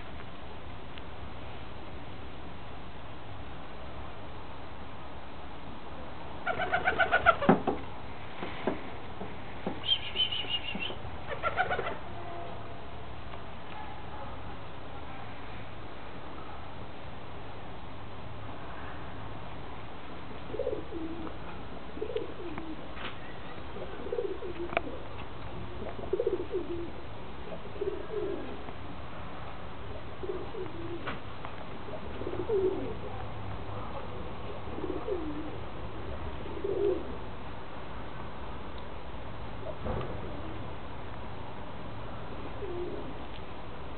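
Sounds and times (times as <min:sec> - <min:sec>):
pigeons cooing: 0:06.5 - 0:07.5, 0:09.8 - 0:12.0, 0:20.5 - 0:28.6, 0:30.2 - 0:31.2, 0:31.8 - 0:33.3, 0:34.0 - 0:37.2, 0:42.6 - 0:43.2.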